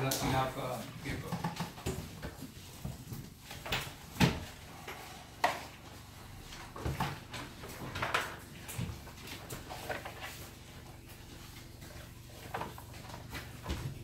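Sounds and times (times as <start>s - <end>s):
sharp knocks and clatters: 1.1s - 3.0s.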